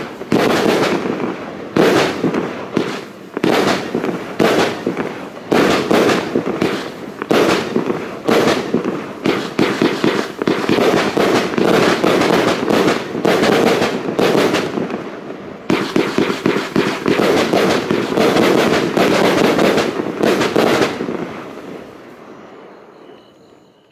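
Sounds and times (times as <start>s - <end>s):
sharp firework bangs: 0.0s - 21.9s
firework battery firing: 0.0s - 22.1s.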